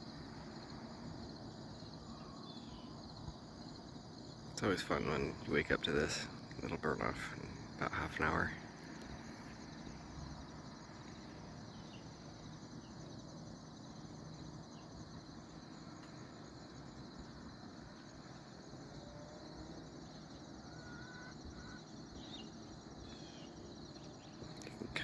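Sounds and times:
insects trilling: 0:00.0 - 0:25.0
faint bird chirps: 0:01.8 - 0:03.8, 0:11.6 - 0:13.4, 0:20.5 - 0:25.0.

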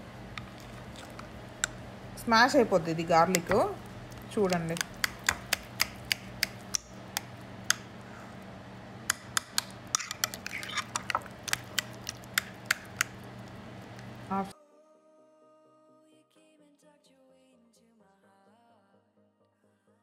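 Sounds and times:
utensil clicking against bowl: 0:01.1 - 0:01.8, 0:03.3 - 0:07.8, 0:09.1 - 0:13.2.

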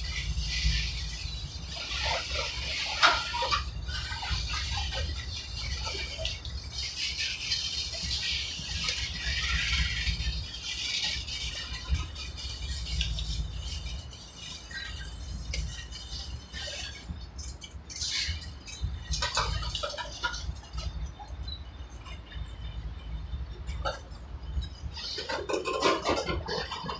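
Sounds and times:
freight cars rattling and clanking: 0:00.0 - 0:26.9.

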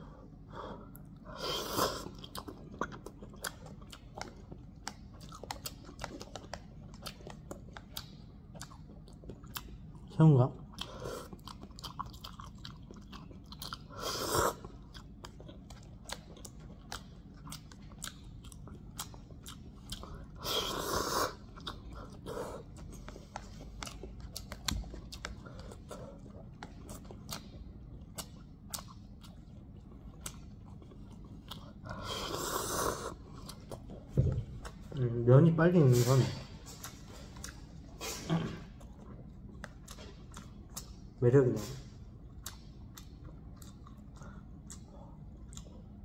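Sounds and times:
person chewing noodles: 0:00.0 - 0:35.2, 0:36.4 - 0:46.0.

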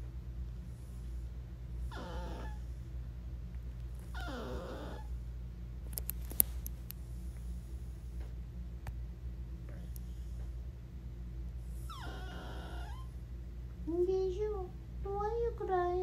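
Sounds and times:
dog whining: 0:01.8 - 0:02.8, 0:04.0 - 0:05.2, 0:11.8 - 0:13.2
sharp clicks: 0:05.9 - 0:07.0.

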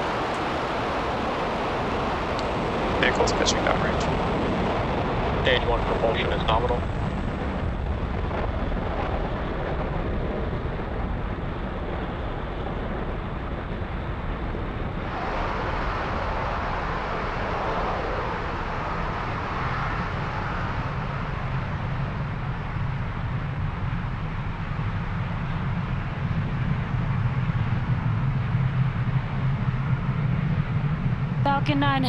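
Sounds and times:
rocket engines rumbling: 0:00.0 - 0:32.0.

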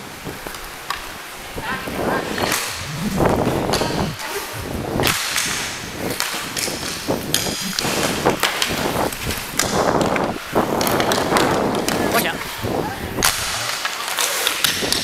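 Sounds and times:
inline skates striding on floor: 0:00.1 - 0:15.0.

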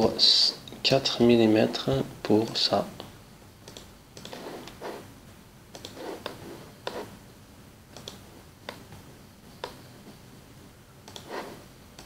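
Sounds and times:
computer mouse clicking: 0:03.6 - 0:04.8, 0:05.7 - 0:07.1, 0:07.9 - 0:08.9, 0:09.6 - 0:09.8, 0:11.0 - 0:11.4.

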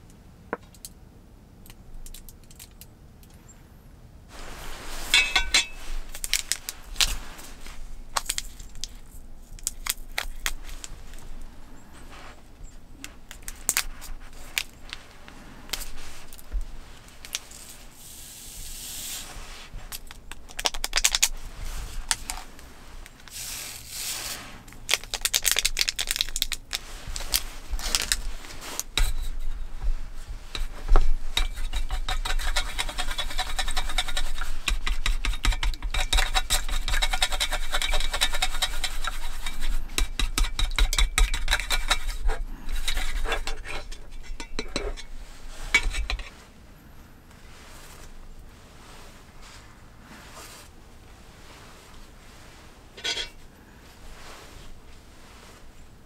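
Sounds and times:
plastic packets crinkling and tearing: 0:06.1 - 0:11.3, 0:19.9 - 0:21.4, 0:24.7 - 0:29.0.

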